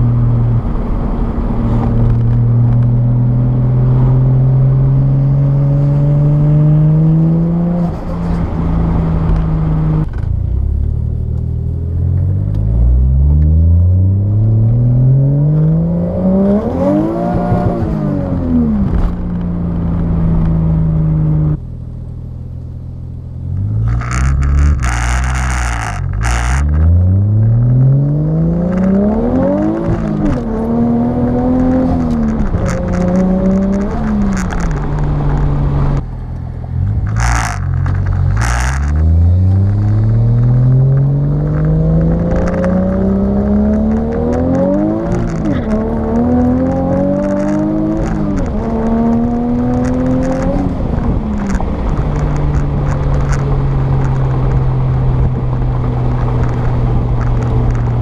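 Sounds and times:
car engine accelerating through gears: 0.0 - 21.6, 22.3 - 58.0.

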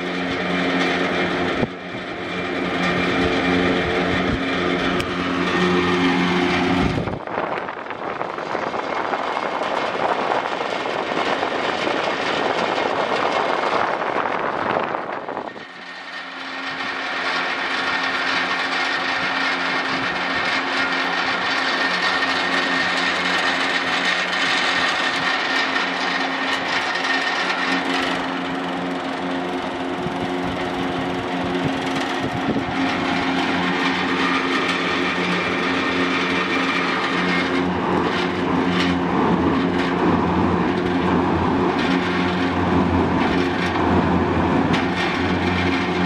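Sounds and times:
air rushing through fan: 0.0 - 46.0
exhaust fan motor hum: 0.0 - 46.0.

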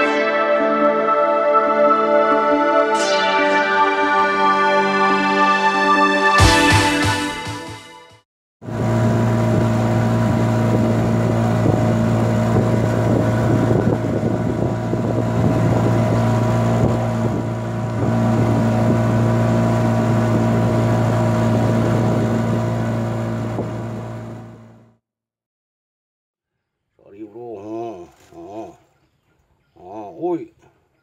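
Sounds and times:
boat engine humming: 8.6 - 24.9
wind and water rushing: 8.8 - 22.6.

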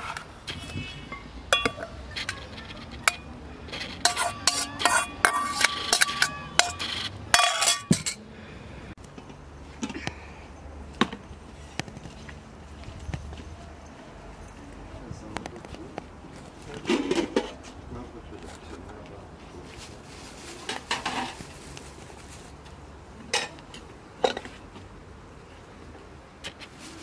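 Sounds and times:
dishes and cutlery clinking: 1.1 - 8.2.

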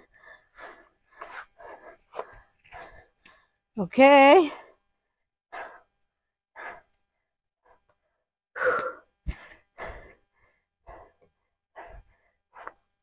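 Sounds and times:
woman breathing hard: 0.0 - 3.7, 4.6 - 13.0.

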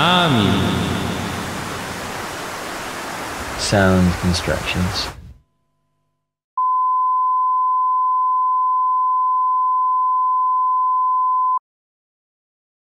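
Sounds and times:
electronic sine tone: 6.6 - 11.6.

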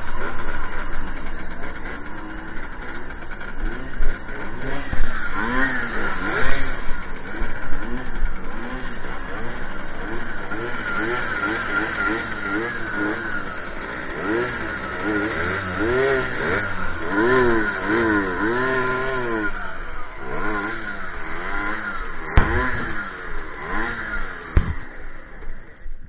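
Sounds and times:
moped engines revving: 0.0 - 26.0
sharp crack: 22.1 - 25.6.

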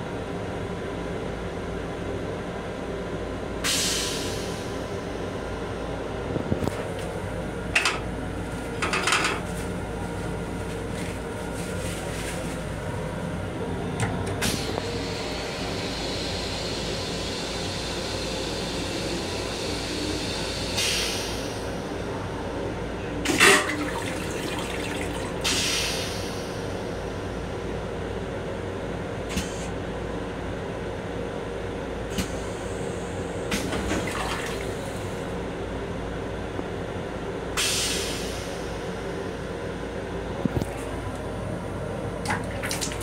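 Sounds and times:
train running hum: 0.0 - 43.0
water running into toilet bowl: 23.3 - 25.4, 42.3 - 43.0.

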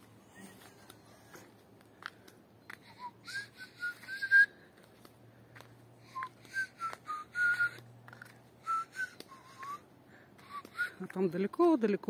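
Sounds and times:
person whistling: 2.8 - 4.6, 6.1 - 7.8, 8.6 - 9.8, 10.4 - 11.0.

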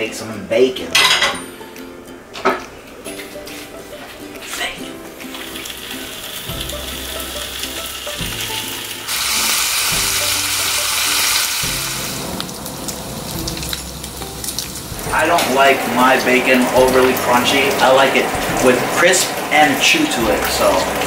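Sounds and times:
bacon sizzling in a frying pan: 5.2 - 21.0.

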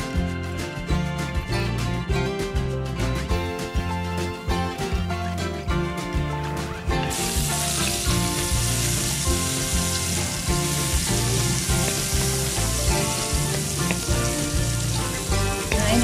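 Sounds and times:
garlic sizzling in oil: 7.0 - 16.0.

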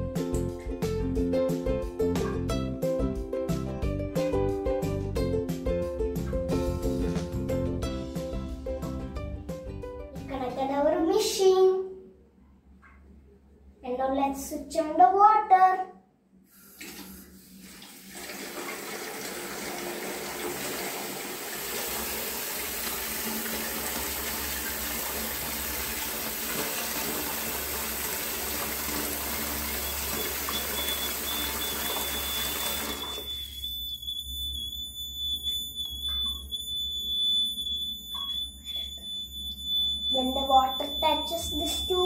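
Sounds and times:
tap water pouring into bucket: 16.7 - 33.6
high continuous buzzer beep: 29.7 - 42.0.

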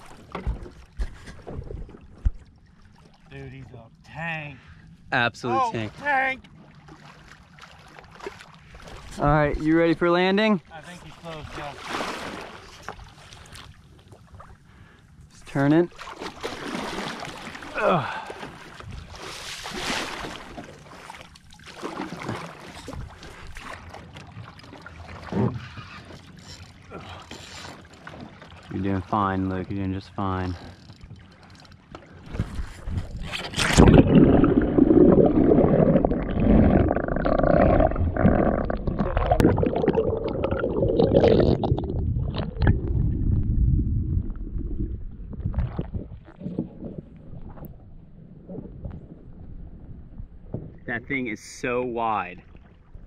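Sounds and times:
water splashing and sloshing: 0.0 - 53.0
splash: 11.4 - 13.6, 15.9 - 25.6, 33.2 - 43.0
muffled underwater gurgle: 32.3 - 50.9.

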